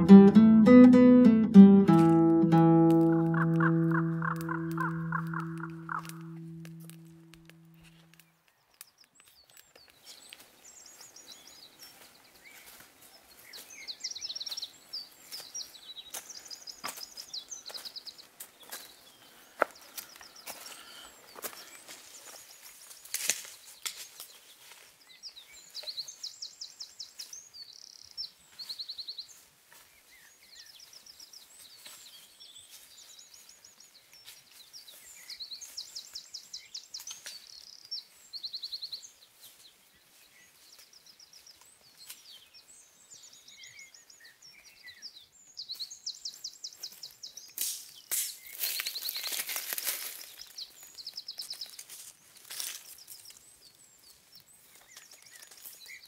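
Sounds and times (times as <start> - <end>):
songbirds trilling: 3.0 - 8.2.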